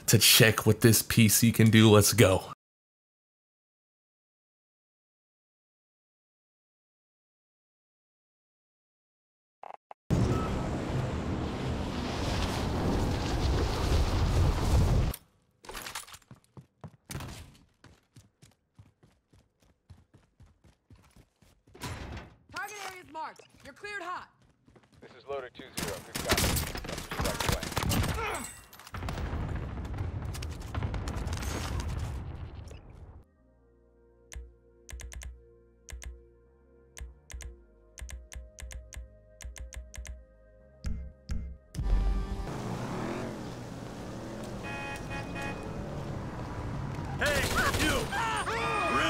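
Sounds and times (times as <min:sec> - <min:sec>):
footsteps running on hard floor: 0:16.3 - 0:21.7, 0:24.4 - 0:25.1.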